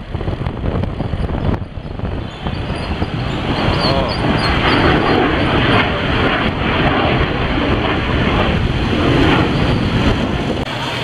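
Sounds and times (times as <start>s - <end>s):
wind rumbling on microphone: 0.0s - 11.0s
loud traffic noise: 1.2s - 5.1s.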